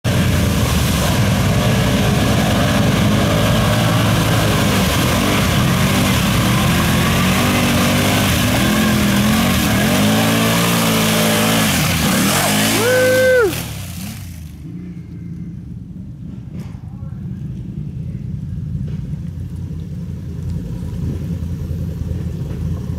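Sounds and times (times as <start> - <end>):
mud and water splashing: 0.0 - 15.0, 17.4 - 22.9
quad engine revving: 0.1 - 14.8.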